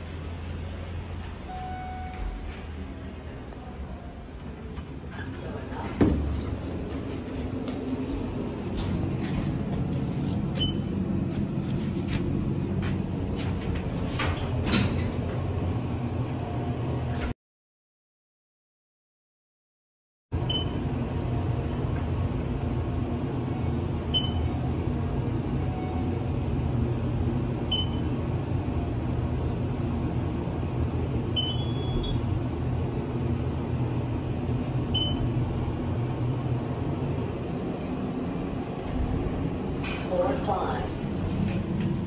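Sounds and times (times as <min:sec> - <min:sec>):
elevator rumbling in motion: 0:00.0 - 0:17.3, 0:20.4 - 0:42.0
short high beep: 0:01.5 - 0:02.4.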